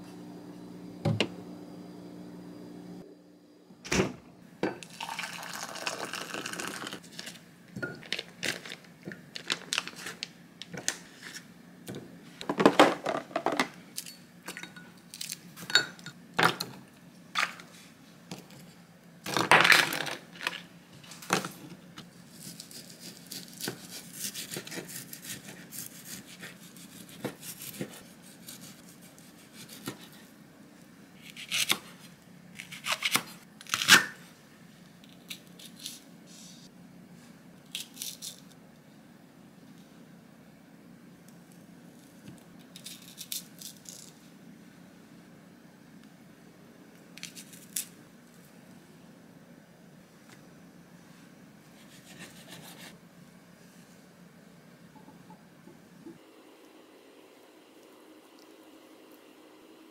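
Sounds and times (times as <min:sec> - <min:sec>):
water pouring from kettle: 0:04.8 - 0:07.0
glass bowls clinking: 0:14.0 - 0:15.0, 0:15.7 - 0:16.2.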